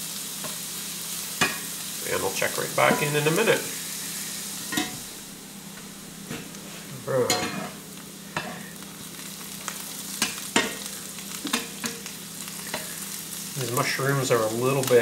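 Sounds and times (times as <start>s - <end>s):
mushrooms sizzling in butter: 0.0s - 15.0s
spatula scraping a pan: 6.6s - 8.8s, 12.5s - 13.1s.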